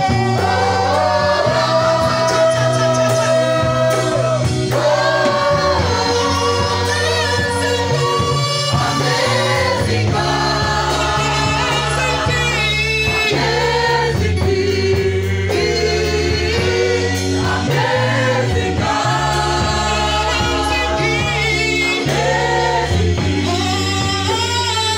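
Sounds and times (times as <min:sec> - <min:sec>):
bass guitar low notes: 0:00.0 - 0:24.9
congregation singing worship song: 0:00.0 - 0:24.9
live band playing: 0:00.0 - 0:24.9.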